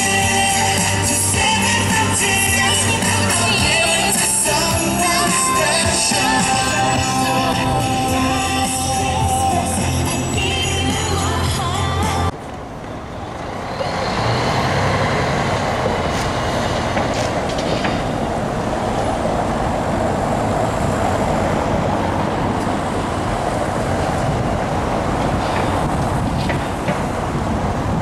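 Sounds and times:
background music: 0.0s - 12.4s
cars passing: 0.0s - 28.0s.

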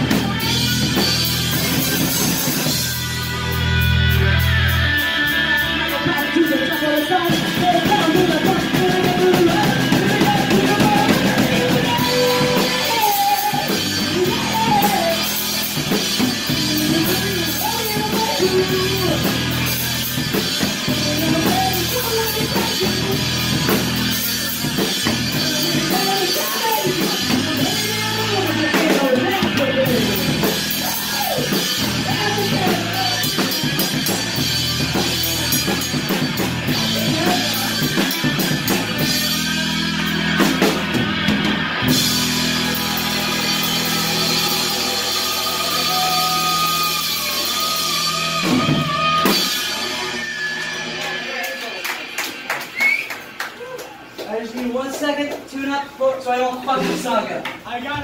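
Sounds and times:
drums and cymbals: 0.0s - 53.4s
electric guitar: 0.0s - 54.3s
person singing: 3.6s - 34.2s, 36.7s - 39.4s, 41.9s - 51.2s.

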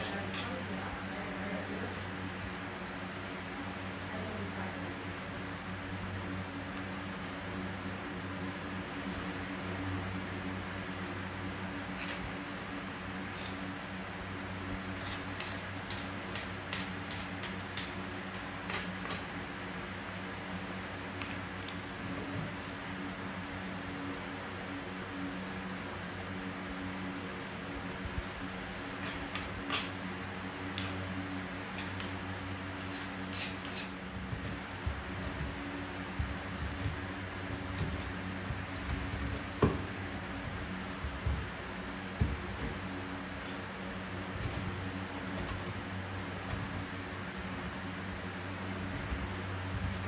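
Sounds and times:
steady low hum: 0.0s - 50.0s
kitchen clicks and scrapes: 15.0s - 19.3s, 29.0s - 30.0s, 32.8s - 34.6s.

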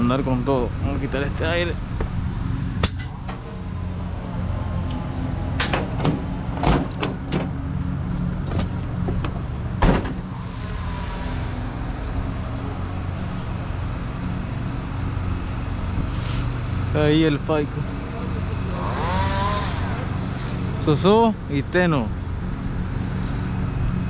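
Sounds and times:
low motor hum: 0.0s - 24.0s
sharp knocks and clicks: 4.8s - 7.6s.

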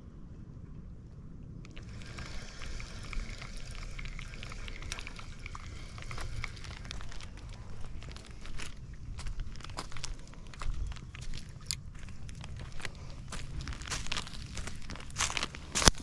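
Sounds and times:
wind on microphone: 0.0s - 16.0s
fishing reel clicking: 1.7s - 8.8s.

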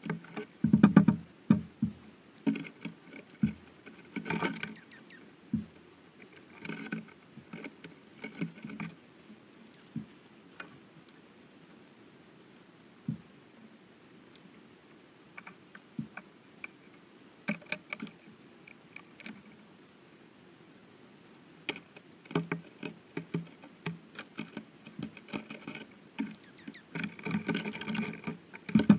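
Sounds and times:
birds pecking and tapping: 0.0s - 11.2s, 15.4s - 19.6s, 21.6s - 28.9s.

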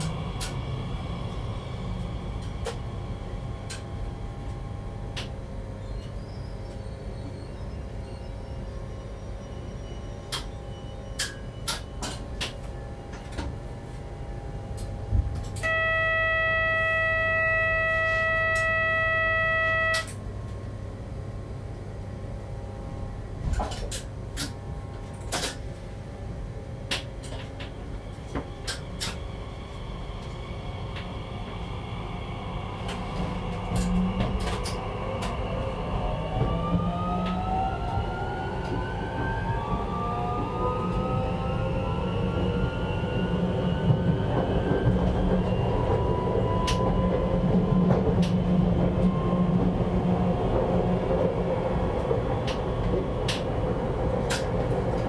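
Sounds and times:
train running noise: 0.0s - 55.0s
loud electronic beep: 15.6s - 20.1s
whining tones sliding upward: 15.6s - 20.1s
clicks and knocks from track: 54.2s - 55.0s.

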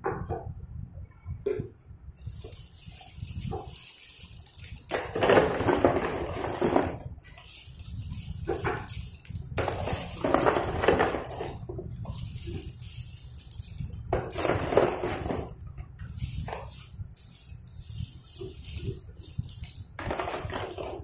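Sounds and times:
pencil sticks clattering in box: 2.2s - 21.0s.

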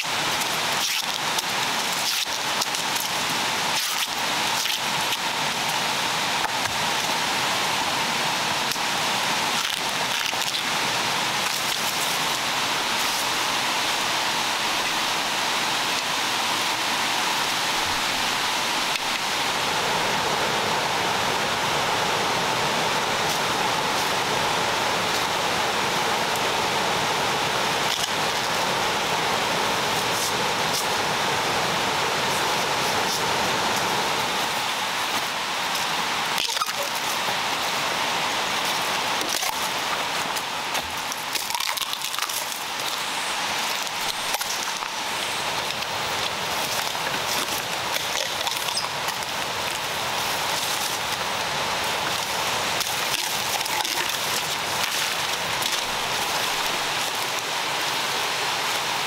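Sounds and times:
forest ambience hiss: 0.0s - 59.0s
bamboo stems snapping and rustling: 9.5s - 10.7s, 38.6s - 45.0s, 52.0s - 57.4s.

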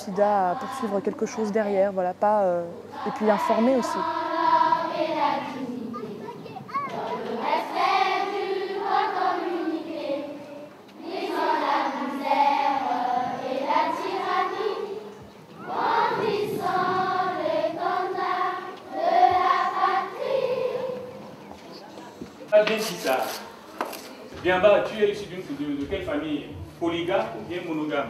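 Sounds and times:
children singing together: 0.0s - 1.5s, 2.8s - 21.4s.

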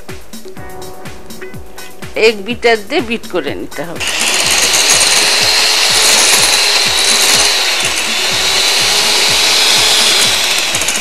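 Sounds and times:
electric hand mixer whisking: 2.9s - 11.0s.

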